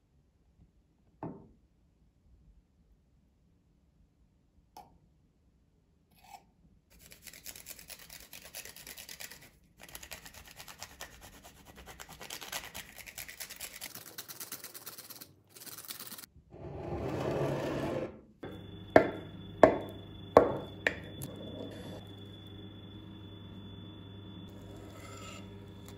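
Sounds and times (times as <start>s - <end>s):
chocolate grating on a grater: 6.9s - 16.7s, 24.5s - 25.9s.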